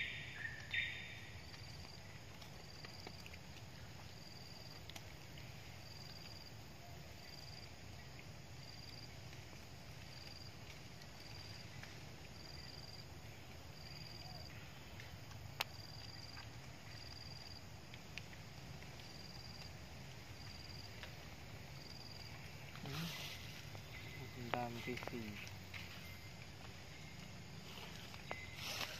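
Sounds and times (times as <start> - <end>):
insect chirping: 0.0 - 28.9.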